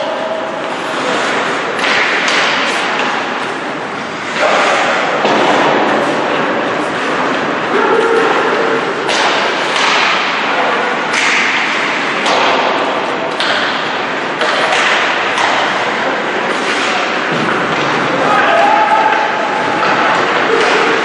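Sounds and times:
skates on ice: 0.0 - 21.0
sticks and puck knocking: 9.0 - 10.4, 11.1 - 18.1.

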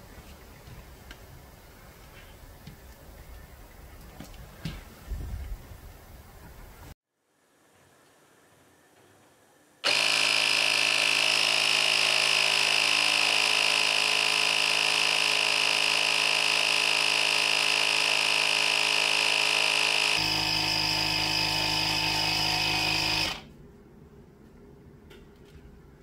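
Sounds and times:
electric air compressor running: 9.8 - 23.5.

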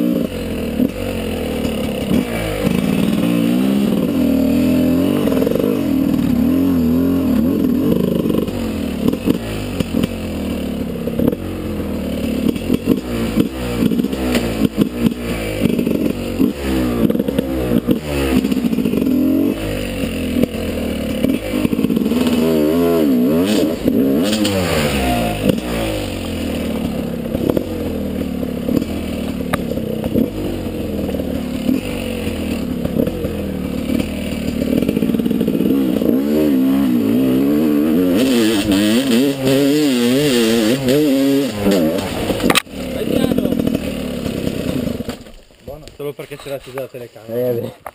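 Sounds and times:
two-stroke motorcycle engine revving: 0.0 - 47.9
motorcycle knocking over ground: 40.8 - 45.6.

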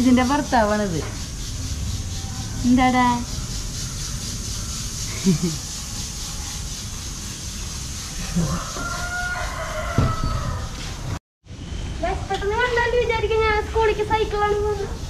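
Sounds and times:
rooster crowing: 8.2 - 11.0.

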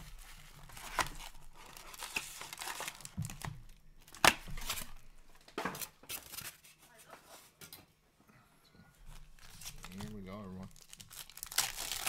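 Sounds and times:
packaging crinkling and tearing: 0.0 - 5.0, 9.1 - 12.0.

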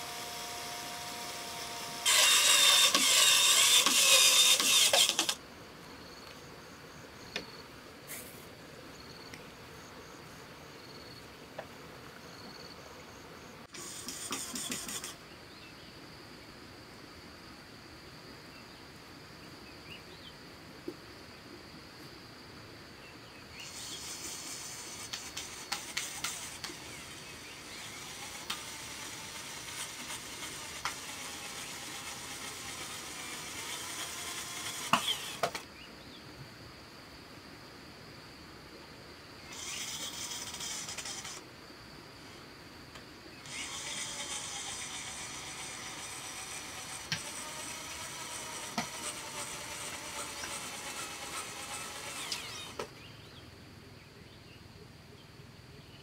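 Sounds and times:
insects chirring: 0.0 - 56.0
loud high hiss: 8.0 - 8.5, 23.6 - 35.6.

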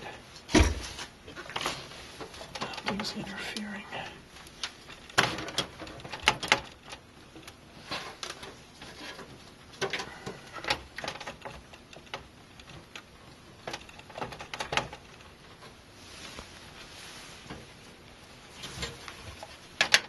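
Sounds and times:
motherboard clicking against case: 4.5 - 7.6, 9.7 - 15.2.

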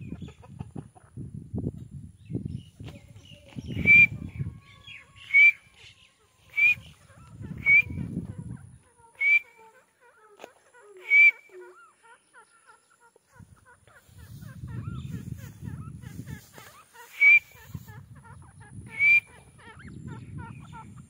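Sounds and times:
soft bird chirps: 2.2 - 21.0
bird whistled calls: 3.6 - 8.2, 9.2 - 9.7, 11.0 - 11.8, 16.9 - 17.8, 18.8 - 20.0.

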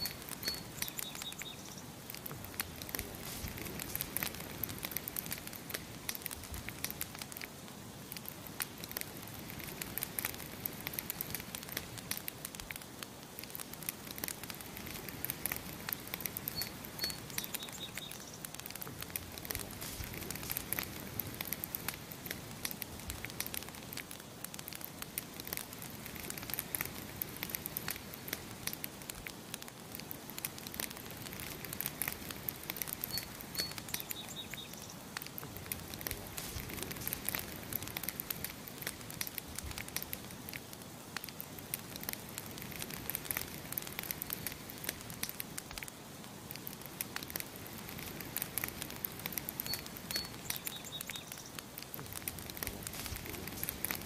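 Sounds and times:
bird chirping: 0.0 - 1.9, 16.5 - 18.4, 33.0 - 35.0, 49.6 - 51.6
campfire crackling and popping: 0.0 - 54.0.

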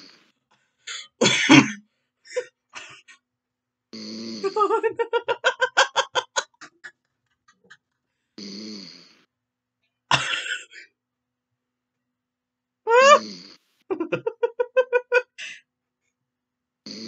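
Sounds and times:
person snoring: 4.0 - 4.8, 8.4 - 9.3, 13.0 - 13.6.

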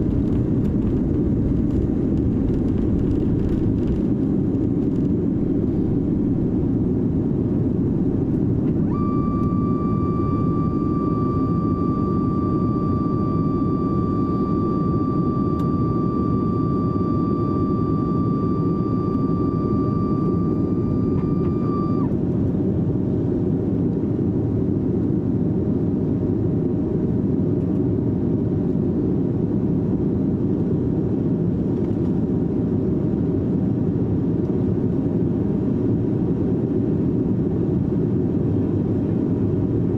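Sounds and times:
steady whine: 0.0 - 25.9
aircraft cabin engine rumble: 0.0 - 39.9.

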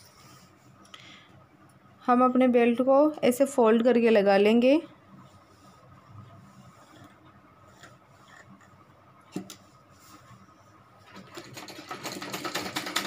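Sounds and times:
sewing machine stitching: 11.1 - 13.0.

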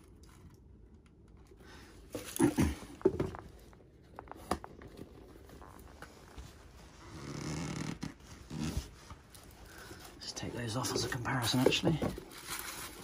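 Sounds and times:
tissue paper rustling: 8.2 - 13.0.

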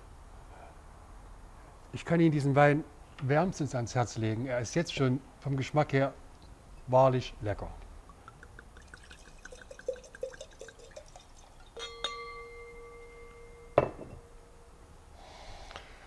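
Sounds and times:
wine glugging into glass: 8.1 - 13.0
glass clink ringing: 8.8 - 14.8
bottle knocking on table: 13.8 - 14.2.

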